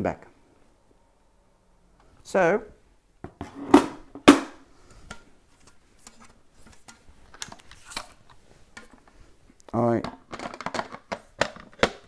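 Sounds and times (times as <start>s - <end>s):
rustling: 4.6s - 12.0s.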